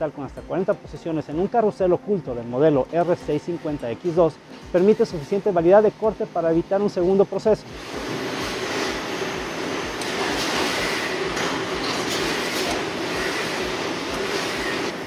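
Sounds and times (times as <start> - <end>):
machining centre spindle hissing: 3.0 - 15.0.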